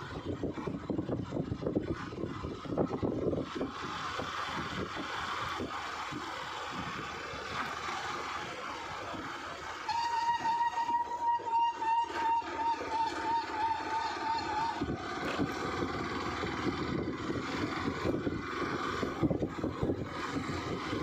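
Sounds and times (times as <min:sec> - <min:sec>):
vehicle wind and road noise: 0:00.0 - 0:21.0
wavering whistle-like tone: 0:09.8 - 0:15.6.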